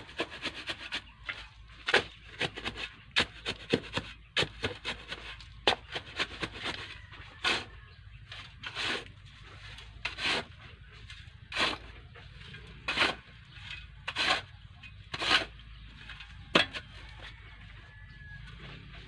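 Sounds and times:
shovel scraping into sand: 8.3s - 11.9s, 12.6s - 15.6s.

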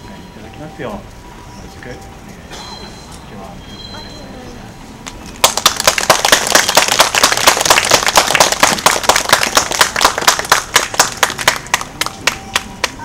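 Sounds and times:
audience applauding: 5.4s - 12.9s.

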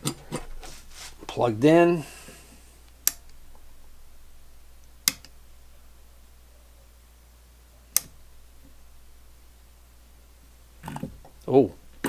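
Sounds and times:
toggle switch clicks: 2.9s - 3.4s, 4.8s - 5.4s, 7.9s - 8.2s.

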